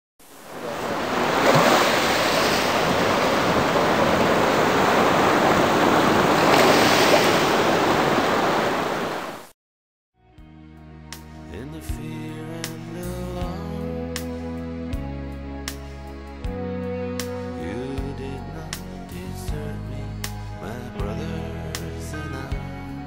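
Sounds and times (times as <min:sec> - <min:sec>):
ocean waves breaking: 0:00.2 - 0:09.5
soft music: 0:10.2 - 0:23.0.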